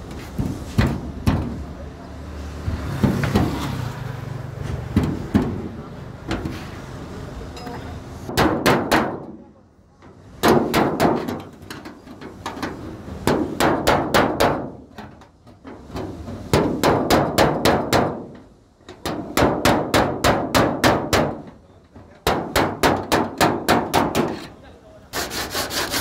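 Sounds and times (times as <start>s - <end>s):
hammer blows on sheet metal: 8.3s - 9.4s, 10.4s - 11.5s, 13.2s - 14.8s, 19.0s - 21.5s, 22.2s - 24.5s.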